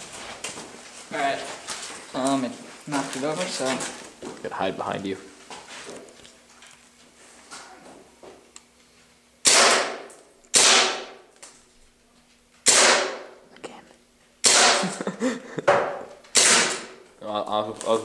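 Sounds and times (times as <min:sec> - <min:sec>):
airsoft pistol shots: 0:09.4 - 0:11.2, 0:12.6 - 0:13.3, 0:14.4 - 0:14.8, 0:16.3 - 0:17.0.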